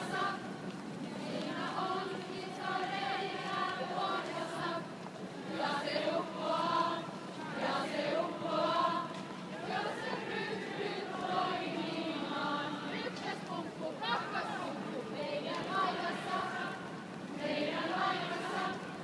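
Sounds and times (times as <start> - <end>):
group of people singing: 0.0 - 19.0.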